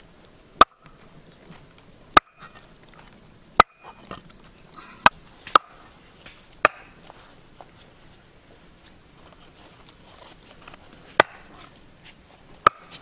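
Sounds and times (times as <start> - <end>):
cleaver chopping meat: 3.6 - 3.9.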